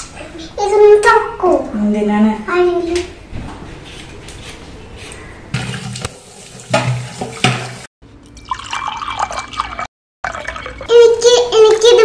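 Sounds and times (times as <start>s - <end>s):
tap water running into sink: 5.6s - 11.1s.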